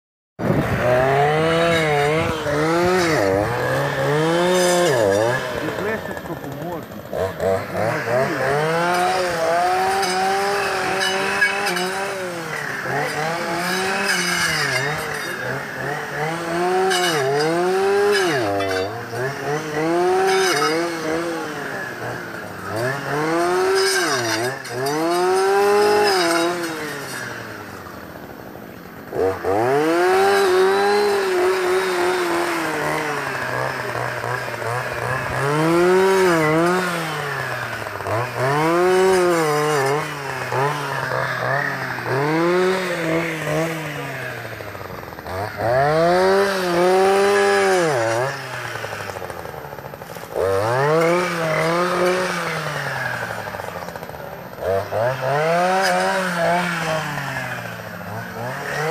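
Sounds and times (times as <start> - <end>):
brush cutter engine revving: 0.4 - 58.9.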